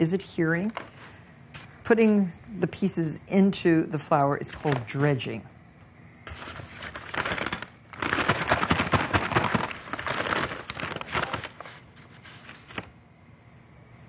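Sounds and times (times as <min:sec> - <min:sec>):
paper bag crinkling: 0:04.5 - 0:05.2, 0:06.3 - 0:12.9.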